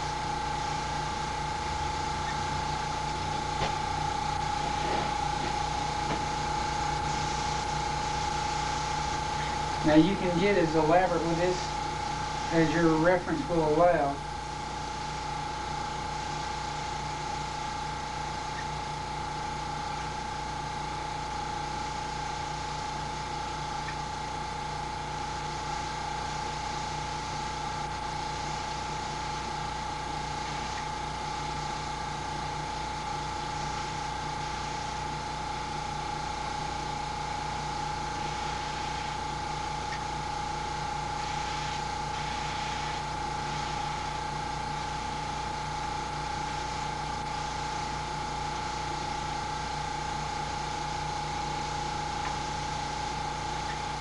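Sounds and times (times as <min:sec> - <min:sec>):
airbrush air hissing: 0:00.0 - 0:18.9, 0:25.1 - 0:45.4
air compressor whining: 0:00.0 - 0:54.0.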